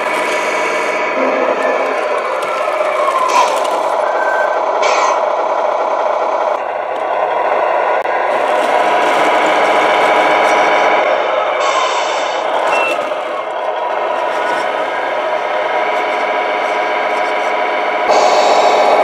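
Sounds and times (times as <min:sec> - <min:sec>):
simulated diesel engine through speaker: 0:00.0 - 0:19.0
air-brake hiss: 0:11.6 - 0:12.5, 0:18.1 - 0:19.0.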